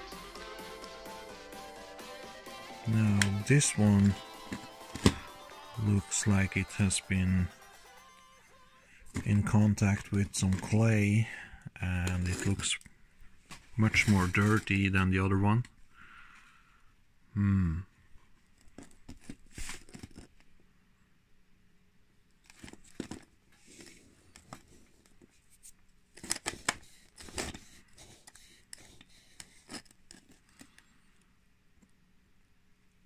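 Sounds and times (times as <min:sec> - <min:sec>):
brief vocal sound: 0:17.4 - 0:17.9
fingers scraping and clicking plastic: 0:26.1 - 0:30.9.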